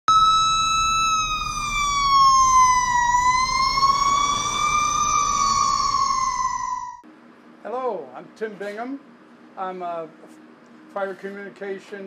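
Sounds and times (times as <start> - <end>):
siren wailing: 0.1 - 7.0.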